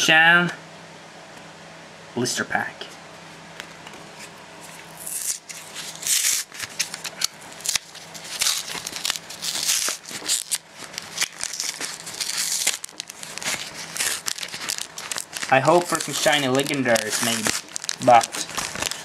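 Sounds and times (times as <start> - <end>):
plastic blister pack crinkling: 4.2 - 19.0.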